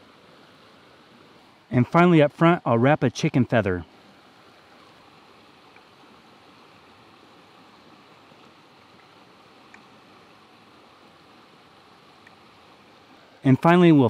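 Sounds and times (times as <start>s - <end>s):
river flowing: 0.0s - 14.0s
tiny ticks: 9.0s - 9.9s, 12.2s - 12.4s.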